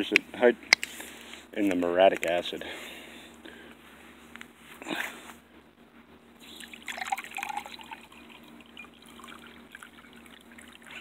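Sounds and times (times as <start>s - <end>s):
liquid trickling into glass beaker: 6.4s - 11.0s.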